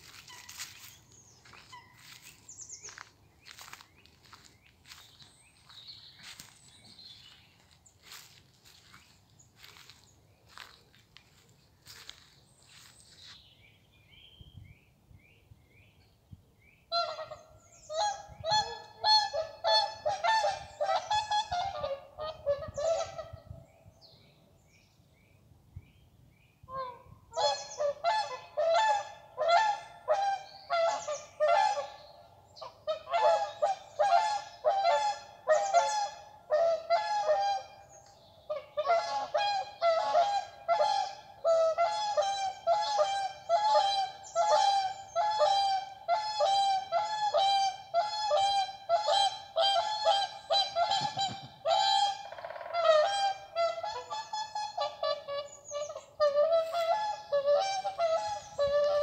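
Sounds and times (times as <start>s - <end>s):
goose honking: 17.0s - 23.3s, 32.9s - 37.8s, 38.5s - 59.0s.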